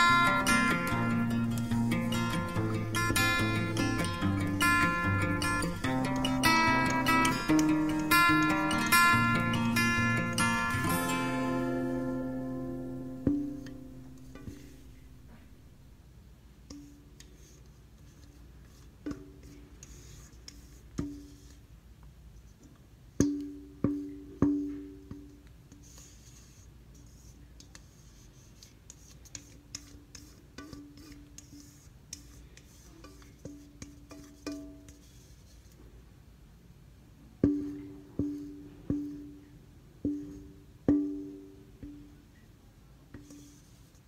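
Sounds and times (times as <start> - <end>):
slow plucked-string music: 0.0 - 15.8.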